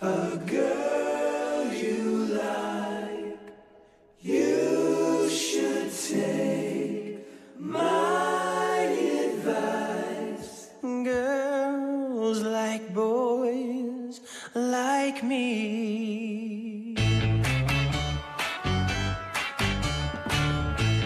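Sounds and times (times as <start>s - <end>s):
a cappella choir chords: 0.0s - 16.2s.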